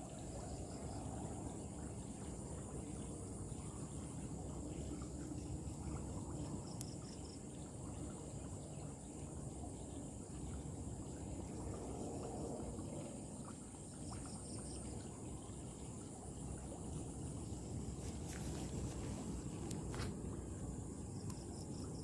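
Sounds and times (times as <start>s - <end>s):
high insect chorus: 0.0s - 22.0s.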